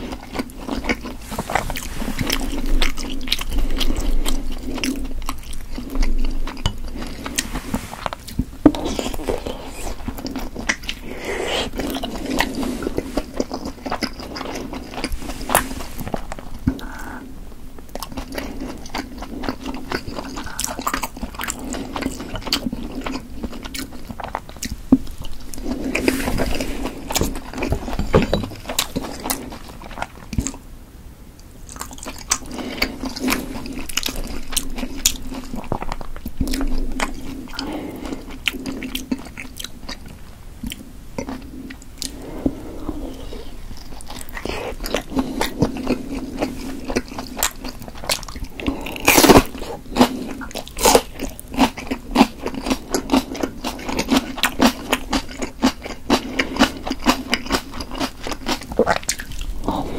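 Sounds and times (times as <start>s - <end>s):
wet chewing with clicks: 31.4s - 59.9s.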